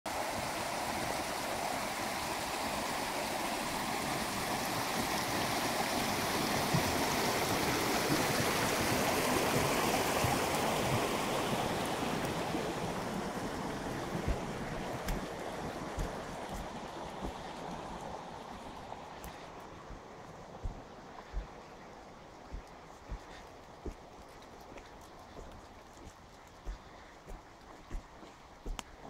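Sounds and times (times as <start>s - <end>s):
creek rushing over rocks: 0.1s - 29.0s.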